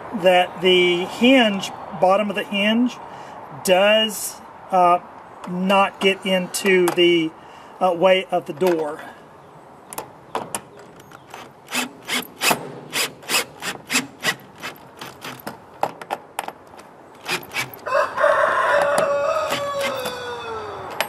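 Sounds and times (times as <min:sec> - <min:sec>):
cordless drill driving screw: 0:11.4 - 0:15.4, 0:17.2 - 0:17.8.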